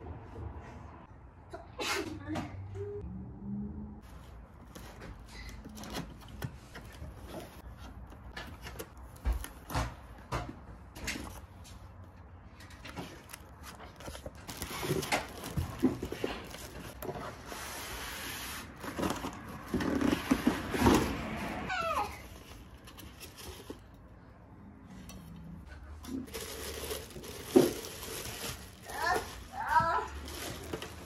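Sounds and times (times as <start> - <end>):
paper and cardboard rustling: 4.0 - 24.2, 25.7 - 31.0
knocks and scrapes: 4.0 - 31.0
cardboard box being handled: 12.8 - 21.5
styrofoam sliding against box: 16.0 - 21.6.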